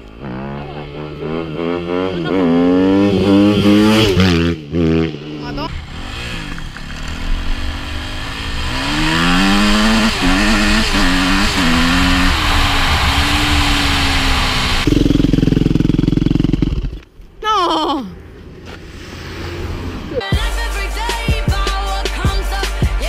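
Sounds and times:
dirt bike accelerating: 0:00.0 - 0:17.1.

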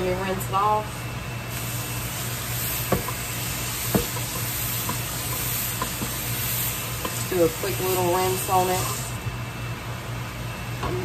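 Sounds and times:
vent fan humming: 0:00.0 - 0:11.0
meat sizzling in frying pan: 0:01.4 - 0:09.4.

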